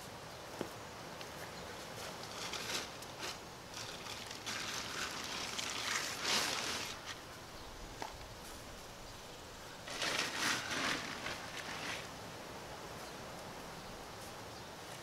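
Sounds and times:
tent fabric rustling: 2.0 - 7.2, 9.9 - 12.2.

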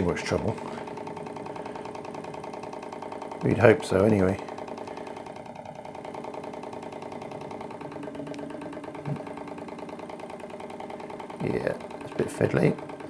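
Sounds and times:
engine generator mechanical rattle: 0.0 - 13.0.

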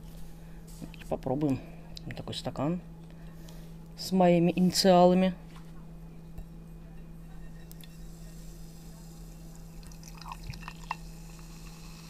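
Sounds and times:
low hum: 0.0 - 12.0
fizzy drink pouring into glass: 9.6 - 12.0.

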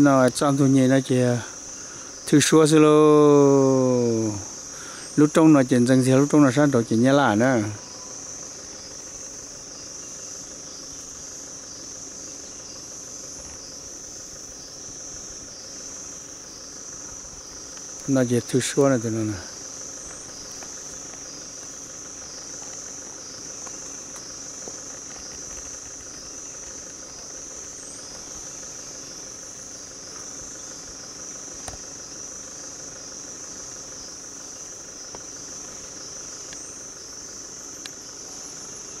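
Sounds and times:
forest insects chorus: 0.0 - 39.0.

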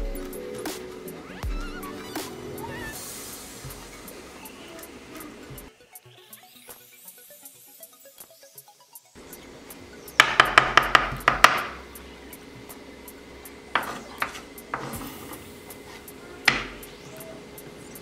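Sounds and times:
knife chopping on wooden board: 13.8 - 15.0.

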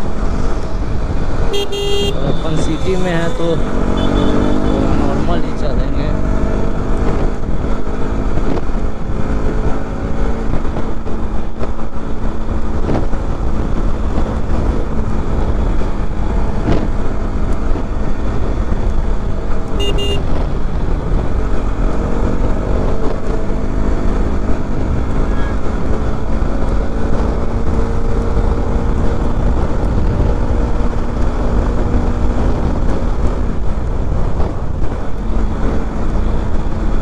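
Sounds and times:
wind rumble on microphone: 0.0 - 1.5, 4.9 - 37.0
horn beep: 1.5 - 4.9, 19.8 - 20.3
motorcycle engine running: 3.4 - 37.0.

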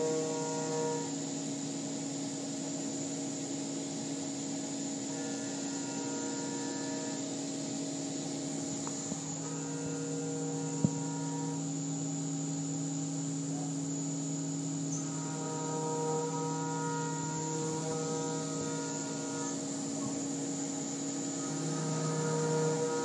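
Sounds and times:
machine hum with high whine: 0.0 - 23.0.

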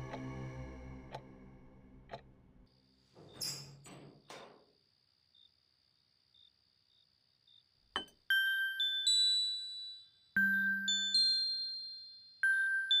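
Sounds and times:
synth drone: 0.0 - 2.7
clock ticking: 2.1 - 2.3.

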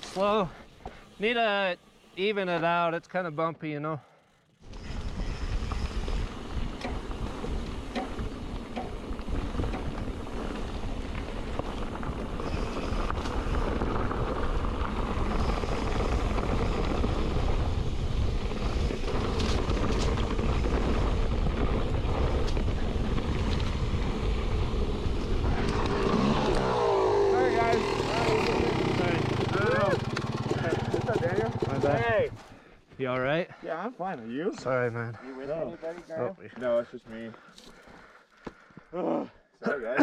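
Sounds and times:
tyres rolling over dirt: 4.6 - 32.4
bike knocks and rattles: 6.6 - 10.6.

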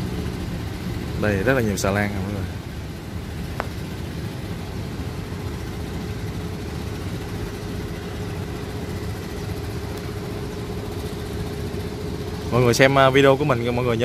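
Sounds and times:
boat engine idling: 0.0 - 14.0.

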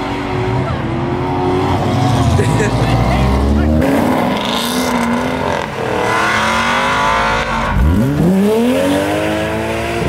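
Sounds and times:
car engine revving: 0.0 - 10.0
sports cars accelerating hard: 0.0 - 10.0.

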